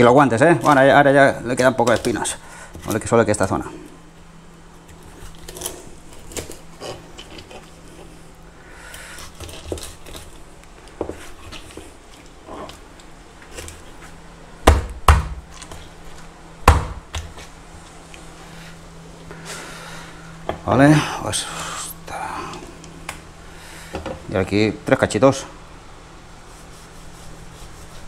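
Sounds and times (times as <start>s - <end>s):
knife scraping fish: 5.0s - 8.2s, 8.9s - 10.4s
knocks on cutting board: 14.7s - 15.4s.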